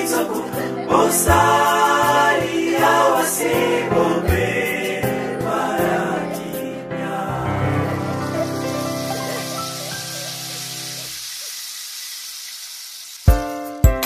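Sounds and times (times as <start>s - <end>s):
male choir singing gospel: 0.0s - 9.3s
instrumental backing: 0.0s - 11.1s.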